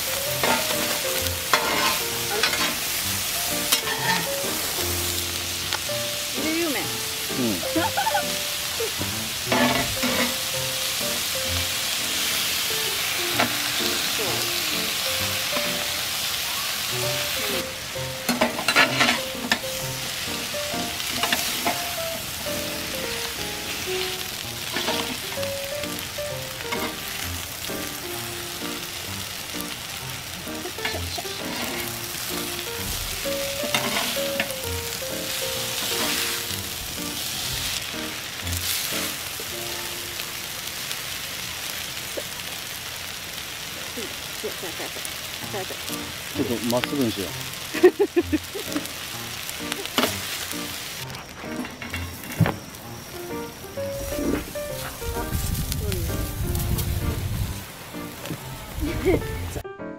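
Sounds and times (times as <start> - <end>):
food sizzling on a griddle: 0.0 - 59.6
spatula scraping metal: 0.4 - 2.8, 3.6 - 4.4, 9.5 - 10.4, 18.3 - 19.6, 33.7 - 34.5.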